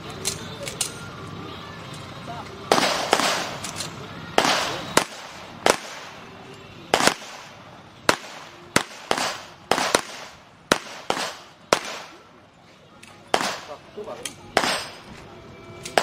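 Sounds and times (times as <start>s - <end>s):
pistol shots with echo: 2.7s - 12.3s, 13.3s - 15.2s.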